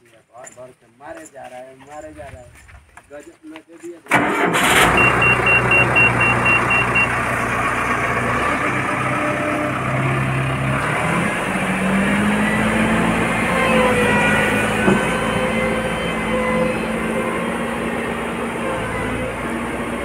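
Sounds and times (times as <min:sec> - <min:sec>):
road roller diesel engine: 0:04.1 - 0:20.0
rapid high beeping alarm: 0:04.9 - 0:07.2.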